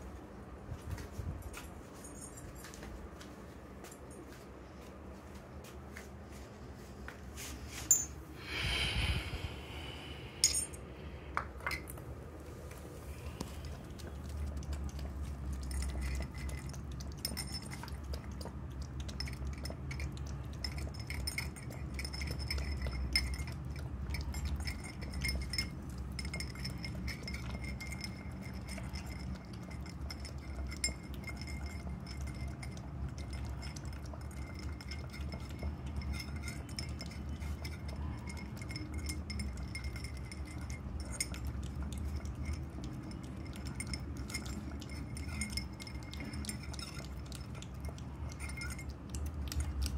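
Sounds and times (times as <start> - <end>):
puppy eating from ceramic bowl: 10.5 - 49.9.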